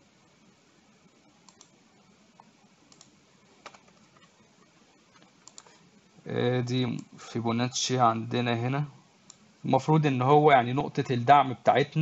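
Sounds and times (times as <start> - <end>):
faint computer mouse clicks: 1.5 - 1.8, 2.4 - 4.3, 5.1 - 5.8.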